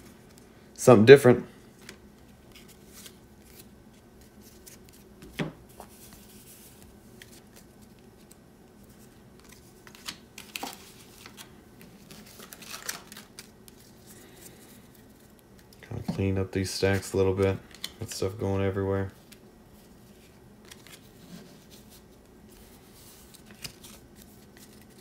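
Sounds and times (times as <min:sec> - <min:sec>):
cards rustling: 0:01.7 - 0:25.0.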